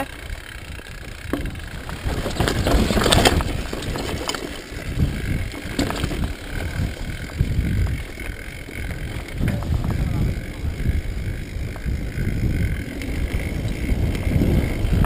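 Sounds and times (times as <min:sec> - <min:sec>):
bike rattling over bumps: 0:00.0 - 0:15.0
tyres rumbling over gravel: 0:00.0 - 0:15.0
wind buffeting microphone: 0:00.0 - 0:15.0.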